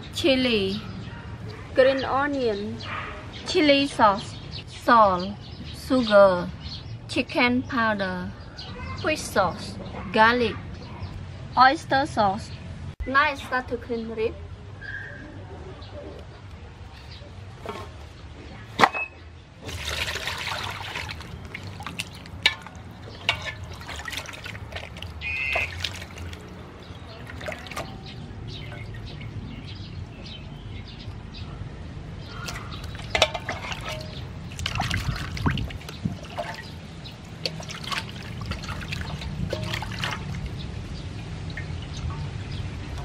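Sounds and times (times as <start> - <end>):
water splashing in metal basin: 19.6 - 29.7, 32.3 - 43.0.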